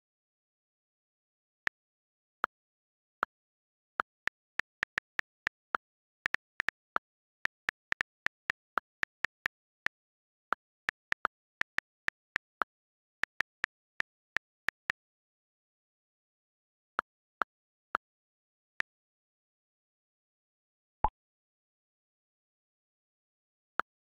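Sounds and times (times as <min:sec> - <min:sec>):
phone keyboard clicks: 0:04.1 - 0:14.8.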